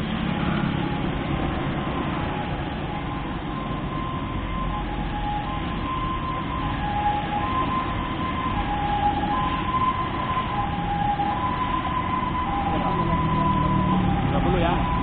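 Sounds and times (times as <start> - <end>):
road traffic: 0.0 - 15.0
two-tone siren: 0.0 - 15.0.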